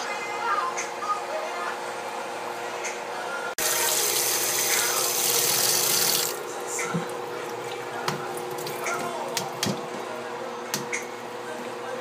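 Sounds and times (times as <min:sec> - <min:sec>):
tap water running into colander: 0:03.6 - 0:09.8.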